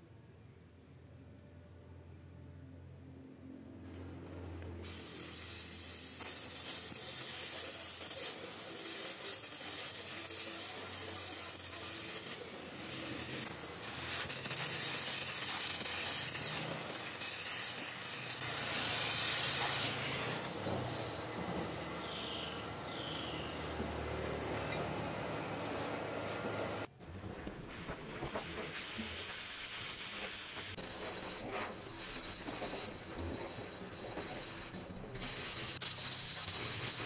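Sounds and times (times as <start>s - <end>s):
gas torch flame hissing: 4.6s - 37.0s.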